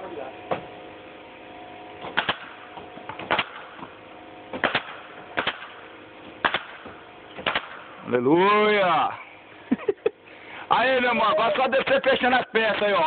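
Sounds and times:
nail gun firing: 2.0s - 3.9s, 4.5s - 5.8s, 6.4s - 7.9s.

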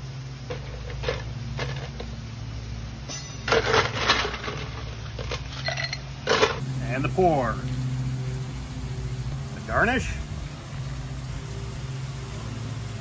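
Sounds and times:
steady low hum: 0.0s - 13.0s
glass clinks and knocks: 3.1s - 3.8s, 5.6s - 6.6s
ice cubes clattering: 3.5s - 6.6s.

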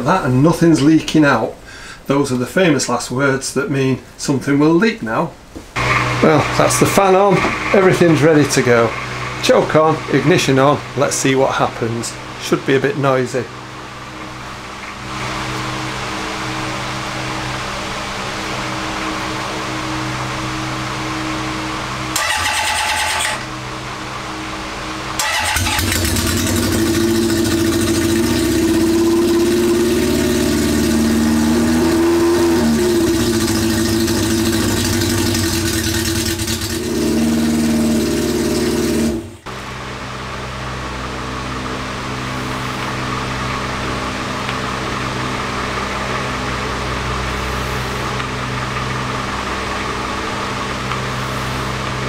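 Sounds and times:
electric starter cranking: 5.8s - 11.2s, 22.1s - 23.5s, 25.2s - 39.5s
motorcycle engine running: 5.8s - 12.4s, 13.5s - 52.0s.

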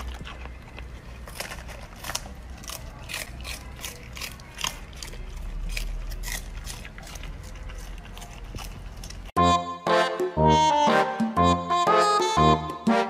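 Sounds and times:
puppy chewing cabbage leaves: 0.0s - 10.1s.

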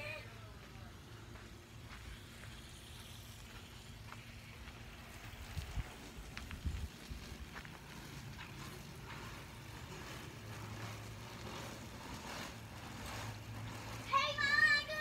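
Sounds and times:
hose water spraying on trampoline: 0.0s - 15.0s.

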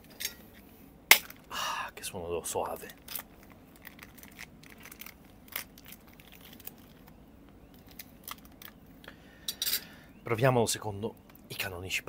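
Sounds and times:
plastic wrapper crinkling: 2.8s - 8.8s.

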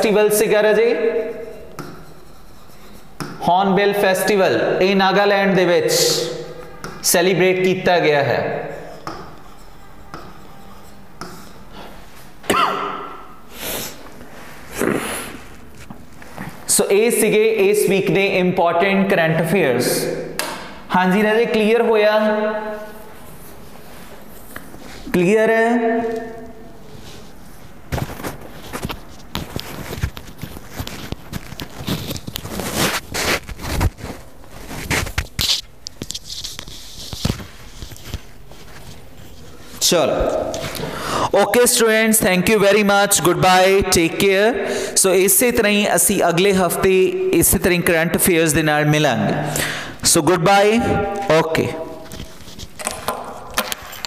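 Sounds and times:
breathy sniffs: 13.5s - 15.5s.

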